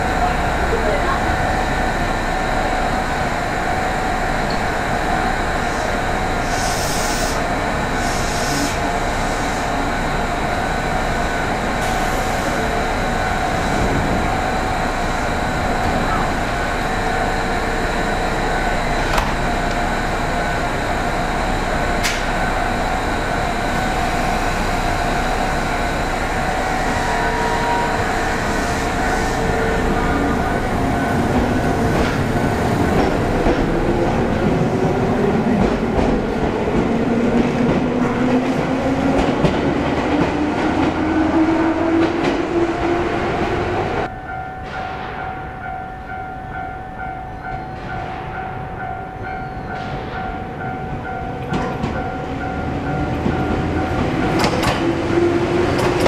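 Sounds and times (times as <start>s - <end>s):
steady train hum: 0.0s - 56.0s
train rumble: 0.0s - 56.0s
electric train motor whine: 1.4s - 33.9s.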